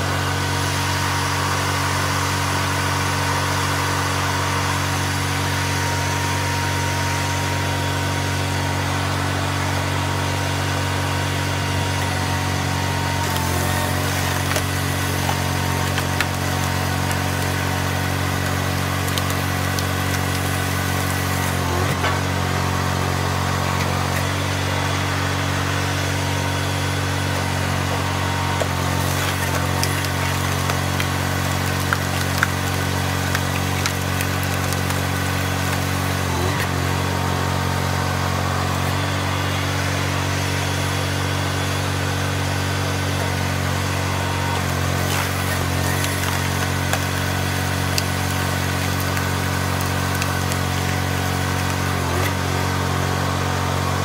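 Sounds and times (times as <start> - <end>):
small engine running: 0.0 - 54.0
wood cracking: 11.8 - 37.8, 42.8 - 53.4.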